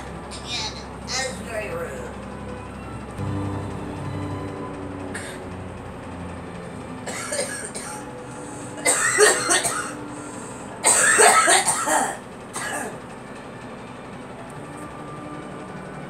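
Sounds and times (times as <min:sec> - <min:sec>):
girl coughing: 0:07.1 - 0:08.0, 0:08.8 - 0:10.0, 0:10.8 - 0:13.0.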